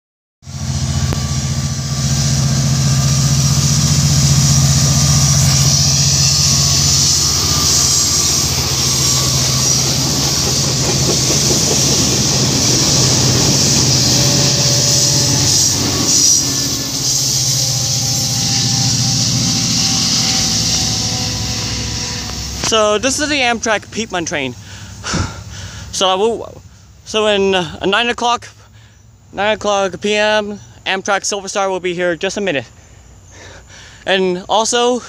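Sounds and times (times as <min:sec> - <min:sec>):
diesel locomotive engine drone: 0:00.4 - 0:35.0
train wheels rumbling on rail: 0:00.5 - 0:27.8.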